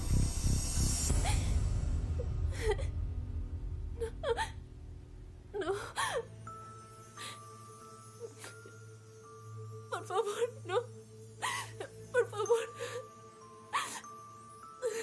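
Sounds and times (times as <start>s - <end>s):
soft sustained music: 0.0s - 15.0s
woman whimpering and gasping: 4.0s - 4.6s, 5.6s - 6.3s, 10.0s - 14.2s, 14.8s - 15.0s.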